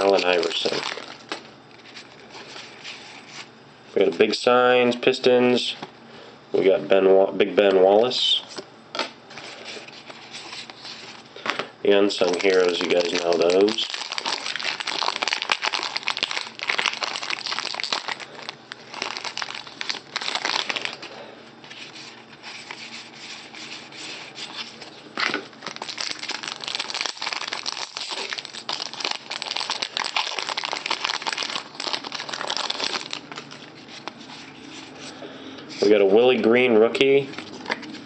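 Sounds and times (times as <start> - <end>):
foil wrapper crinkling and tearing: 0.0 - 3.3, 12.2 - 34.5.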